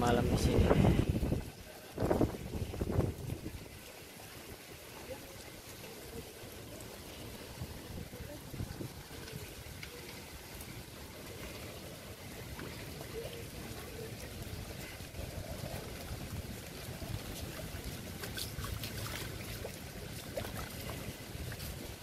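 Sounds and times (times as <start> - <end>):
steady rain: 0.0 - 22.0
wind rumbling on microphone: 0.0 - 22.0
sharp ticks of raindrops: 8.6 - 22.0.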